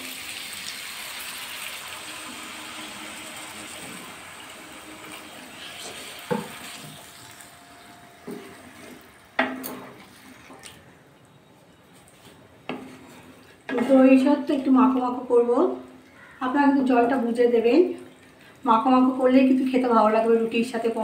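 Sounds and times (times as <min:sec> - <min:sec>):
water hissing in hot pan: 0:00.0 - 0:07.6.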